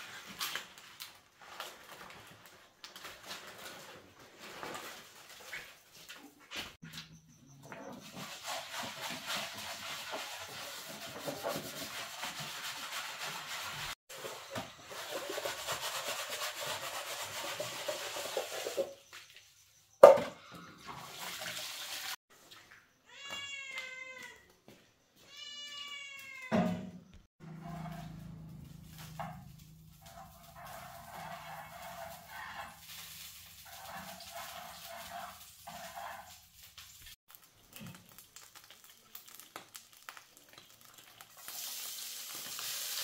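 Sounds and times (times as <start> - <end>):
frying pan being scrubbed: 7.9 - 19.0, 20.9 - 22.2, 27.4 - 37.2, 41.3 - 43.0
cat meowing: 23.1 - 24.4, 25.2 - 26.6.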